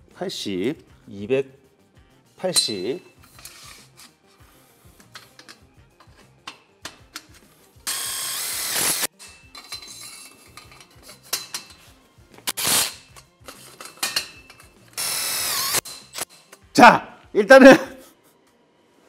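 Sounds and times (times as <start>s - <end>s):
metal parts clicking and knocking: 5.1s - 7.4s, 9.2s - 11.8s, 13.0s - 14.8s
drill driving screws into metal: 7.9s - 9.1s, 12.5s - 13.0s, 15.0s - 16.3s.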